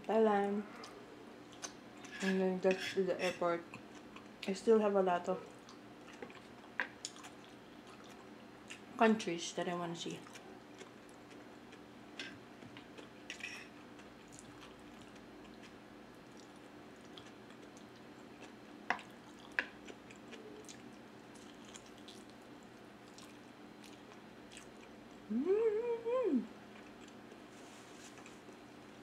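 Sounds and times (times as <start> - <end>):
chewing and wet mouth sounds: 0.8 - 2.2, 5.4 - 8.9, 12.7 - 25.3, 26.7 - 27.4.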